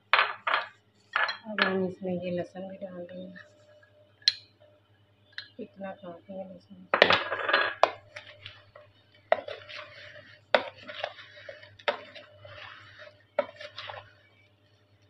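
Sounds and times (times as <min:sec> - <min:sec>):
rustling and scraping of fruit pieces: 0:07.0 - 0:15.0.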